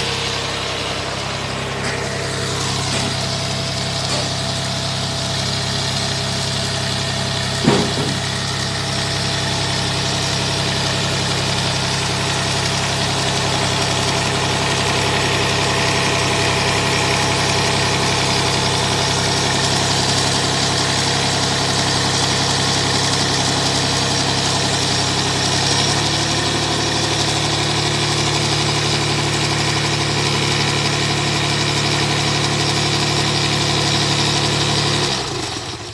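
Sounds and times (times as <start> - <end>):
tractor engine running: 0.0 - 35.9
sharp knock: 7.6 - 8.2.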